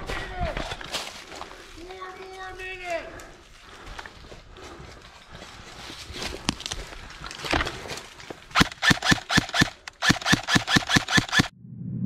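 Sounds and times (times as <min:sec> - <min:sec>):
airsoft rifle full-auto bursts: 0:08.5 - 0:11.5.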